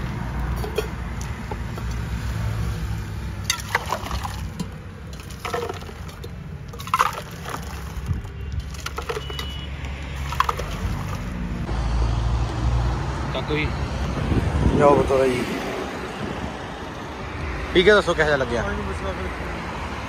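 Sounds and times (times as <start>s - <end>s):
steel vessels clinking: 0.6s - 1.0s, 3.4s - 11.4s
liquid pouring and splashing: 3.4s - 11.4s.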